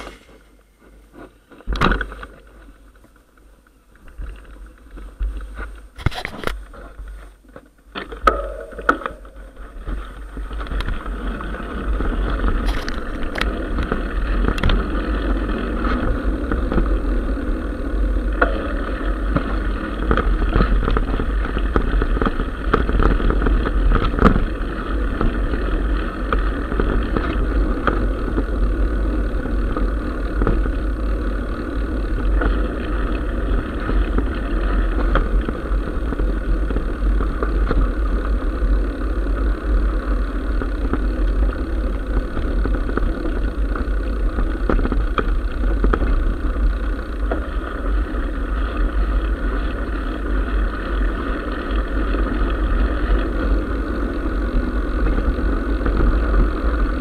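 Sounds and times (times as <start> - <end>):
bike rattles: 0.0 - 57.0
mountain bike rumbling on dirt: 0.0 - 57.0
knocks and clatter: 8.0 - 11.1.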